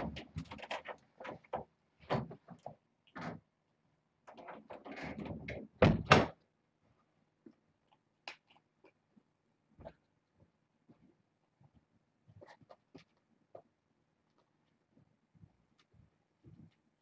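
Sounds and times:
heavy door thuds: 5.8 - 6.3.

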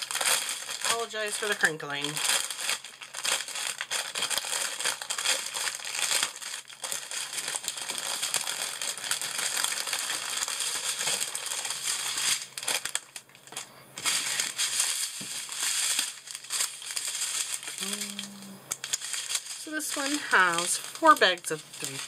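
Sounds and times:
plastic packaging crinkling: 0.0 - 22.0.

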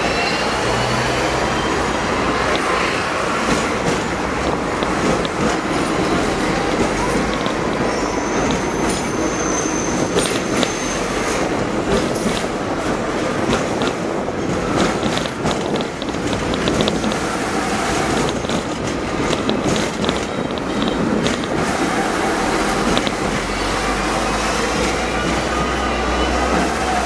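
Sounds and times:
tram wheels rumbling on rail: 0.0 - 27.0
clicks and rattles: 18.2 - 21.6.

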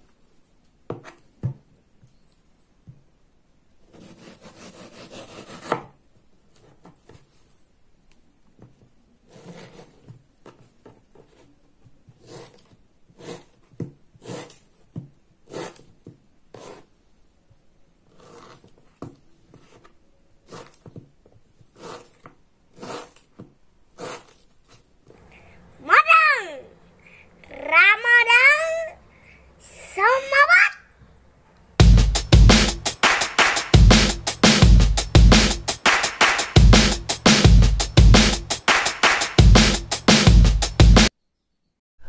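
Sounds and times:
knife slicing mango: 3.9 - 6.0.

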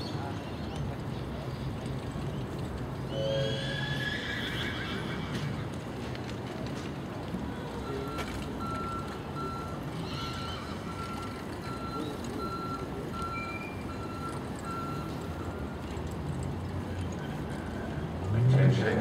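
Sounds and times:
showground background noise: 0.0 - 19.0
vehicle reversing beeper: 7.8 - 16.0.

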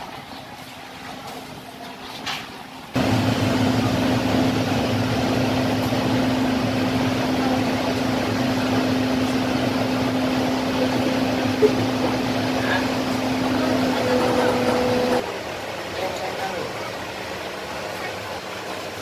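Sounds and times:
ferry engines droning: 3.0 - 15.4.

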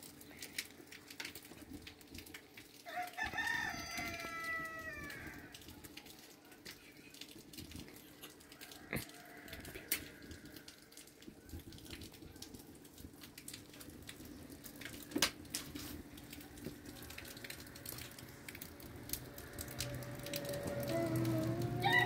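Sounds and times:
wood fire crackling: 0.0 - 22.0
fire snap: 11.2 - 21.9.

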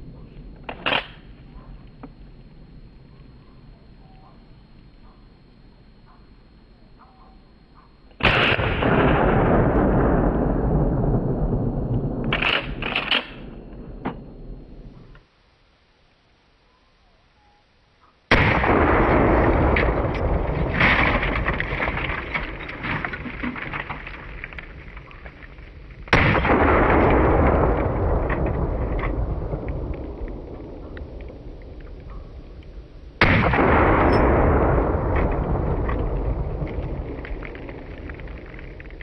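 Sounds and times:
loud shotgun shots: 8.2 - 10.2, 18.3 - 21.9, 26.1 - 29.2, 33.2 - 36.0.

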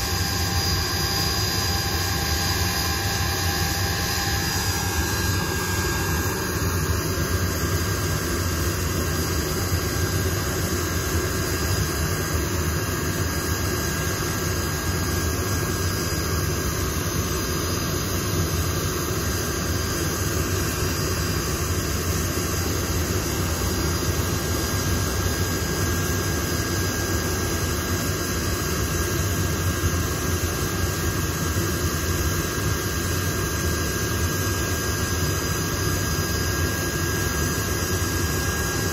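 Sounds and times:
jet engines running: 0.0 - 13.3.

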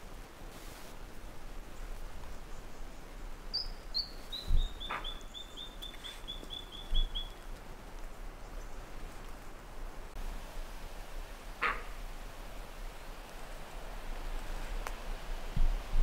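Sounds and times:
bird calling: 3.5 - 7.6, 11.6 - 12.0.

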